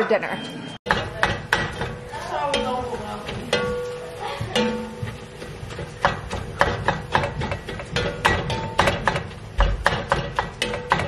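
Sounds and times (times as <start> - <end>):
utensil knocking against a pan: 0.9 - 11.0.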